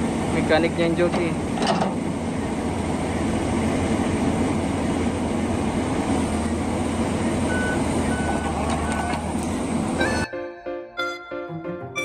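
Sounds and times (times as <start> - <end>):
excavator diesel engine running: 0.0 - 12.0
travel alarm beeps: 7.5 - 9.1.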